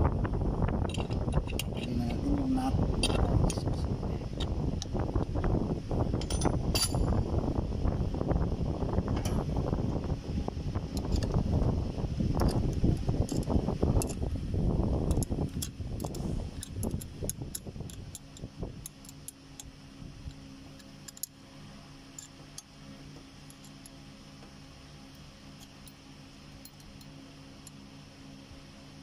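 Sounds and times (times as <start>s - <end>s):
low hum: 0.0s - 29.0s
wrench clinking on metal: 6.2s - 7.2s.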